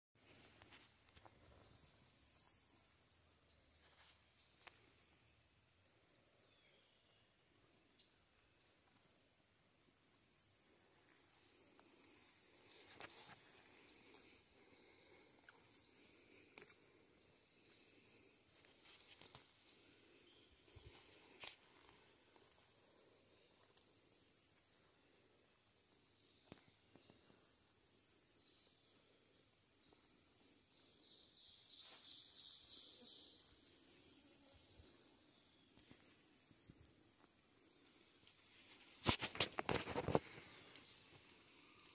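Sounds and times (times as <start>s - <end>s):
songbird chirping: 0.2s - 41.9s
faint footsteps on trail: 10.8s - 24.8s, 31.7s - 41.2s.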